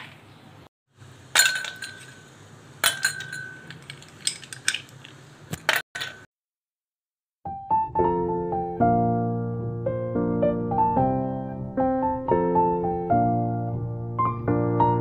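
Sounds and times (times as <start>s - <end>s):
ice cubes clinking in glasses: 1.3s - 6.3s.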